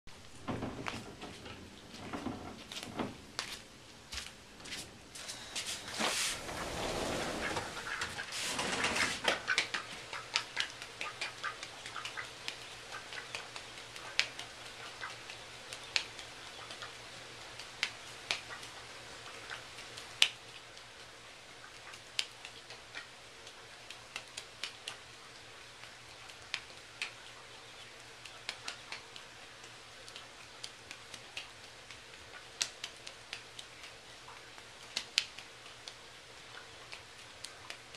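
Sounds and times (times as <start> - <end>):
rustling and shuffling: 0.1 - 10.1
duck claws clicking on hard floor: 9.2 - 37.9.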